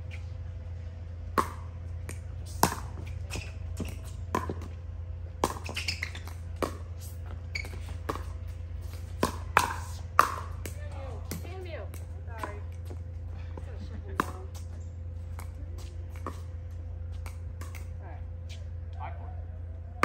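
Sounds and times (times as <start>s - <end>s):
steady low hum: 0.0s - 20.0s
paddles hitting plastic ball: 1.4s - 4.8s, 5.4s - 13.0s, 14.1s - 14.7s, 15.3s - 16.5s, 17.2s - 17.9s.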